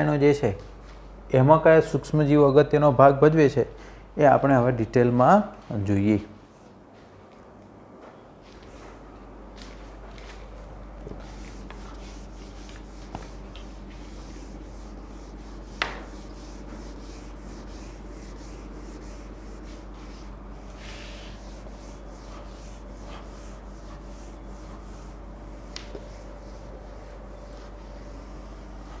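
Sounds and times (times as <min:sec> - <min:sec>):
duster rubbing on whiteboard: 0:11.0 - 0:29.0.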